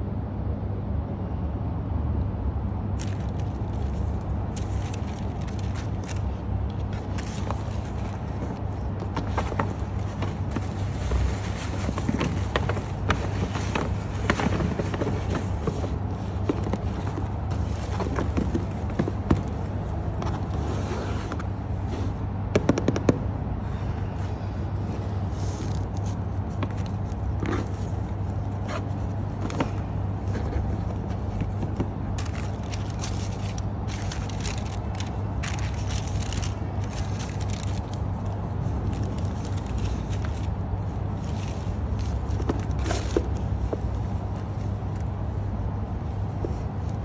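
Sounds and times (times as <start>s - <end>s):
steady low hum: 0.0s - 47.0s
tissue paper rustling: 3.0s - 18.9s, 30.2s - 43.4s.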